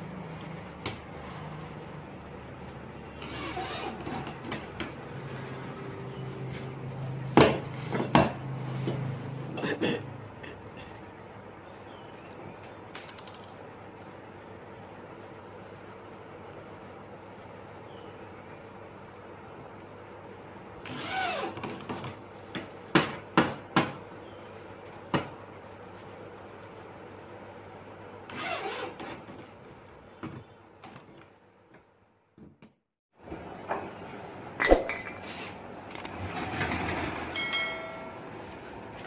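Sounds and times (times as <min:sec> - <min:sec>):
electric drill driving screws: 0:03.2 - 0:04.2, 0:20.8 - 0:21.7, 0:28.3 - 0:29.0.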